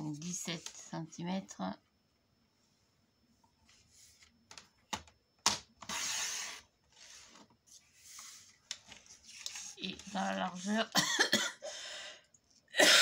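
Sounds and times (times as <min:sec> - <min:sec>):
paper sliding: 0:05.8 - 0:10.6.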